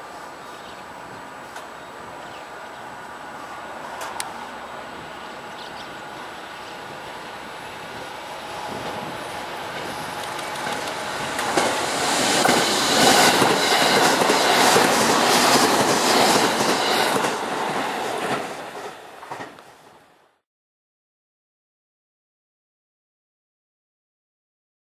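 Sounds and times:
electric train passing: 0.0s - 20.4s
wheels clacking over rail joints: 8.7s - 19.8s.

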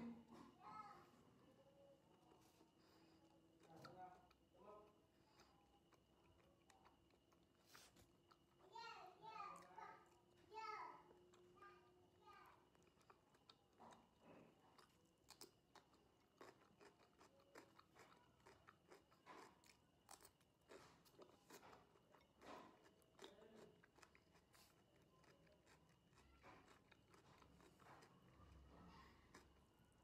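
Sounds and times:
cucumber crunching being chewed: 2.1s - 8.6s, 12.5s - 30.0s.

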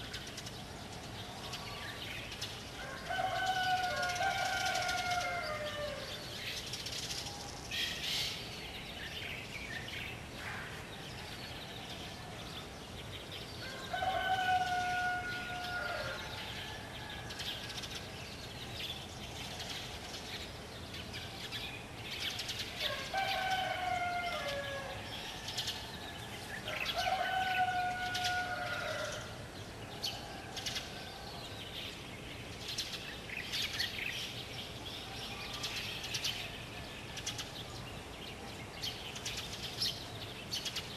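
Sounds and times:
small birds chirping: 0.0s - 40.9s
rooster crowing: 2.8s - 6.2s, 13.6s - 17.7s, 22.8s - 29.4s.

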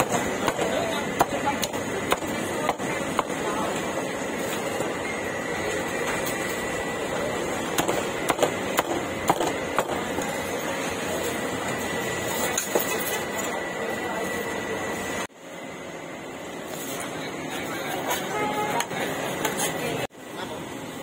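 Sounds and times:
market background din: 0.0s - 21.0s.

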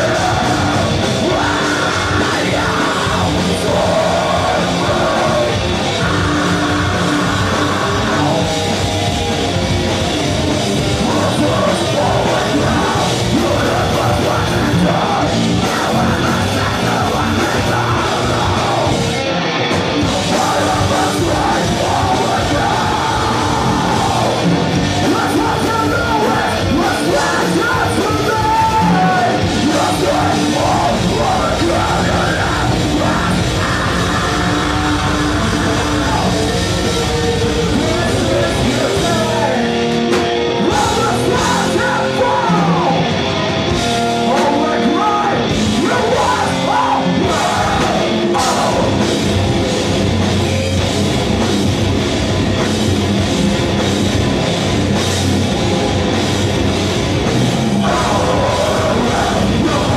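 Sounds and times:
screamed vocals: 0.0s - 8.8s, 20.2s - 39.8s, 40.6s - 43.2s, 44.3s - 49.1s, 57.5s - 59.9s
bass guitar: 0.0s - 59.9s
distorted guitars: 0.0s - 59.9s
drums: 0.0s - 59.9s.

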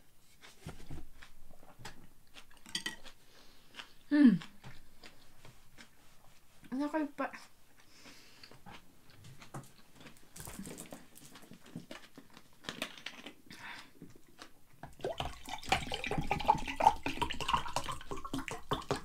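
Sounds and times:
rustling: 9.2s - 13.4s
water pouring into glass: 15.0s - 19.0s.

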